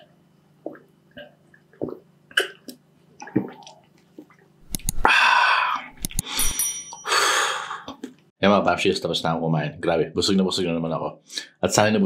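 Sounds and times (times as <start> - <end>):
wet mouth swallowing sounds: 0.6 - 5.1, 5.7 - 6.2
long breathy exhale: 5.0 - 7.9
high glass clink: 6.2 - 7.4.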